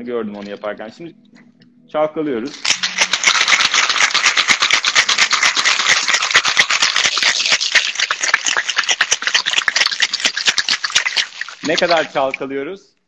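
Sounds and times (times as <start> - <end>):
ice rattling in cocktail shakers: 2.5 - 12.4.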